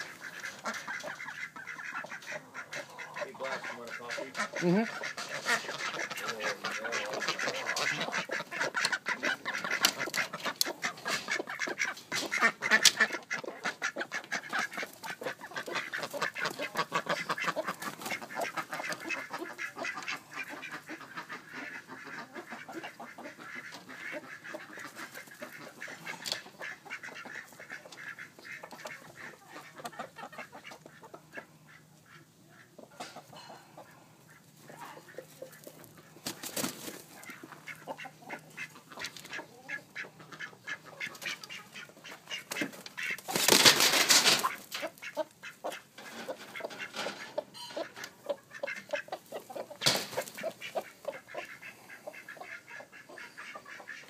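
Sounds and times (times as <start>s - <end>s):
ducks quacking: 0.0s - 54.0s.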